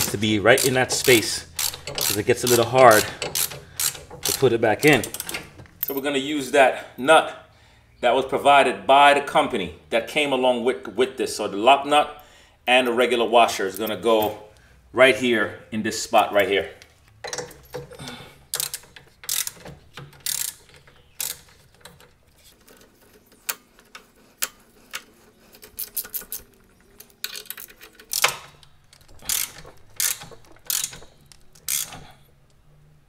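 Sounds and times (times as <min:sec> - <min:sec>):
ratchet wrench clicking: 0:00.0 - 0:06.0, 0:18.5 - 0:21.6, 0:27.3 - 0:28.6, 0:29.2 - 0:32.1.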